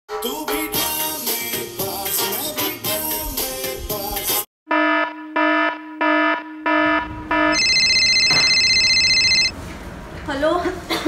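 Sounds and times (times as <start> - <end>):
high electronic trilling ring: 4.7 - 9.5.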